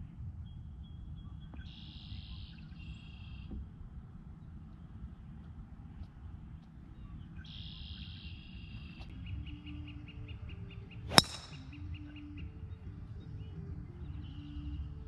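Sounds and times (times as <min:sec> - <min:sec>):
birds chirping: 0:00.0 - 0:15.0
golf club striking ball: 0:11.1 - 0:11.8.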